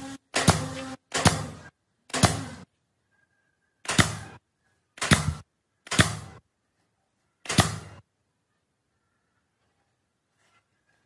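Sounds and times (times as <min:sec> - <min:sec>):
nail gun firing: 0:00.0 - 0:02.7, 0:03.8 - 0:04.4, 0:05.0 - 0:06.4, 0:07.4 - 0:08.0.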